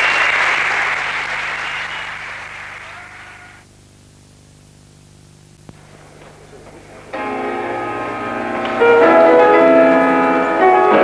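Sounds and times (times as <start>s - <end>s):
audience applauding: 0.0s - 3.7s
low steady hum: 3.5s - 10.3s.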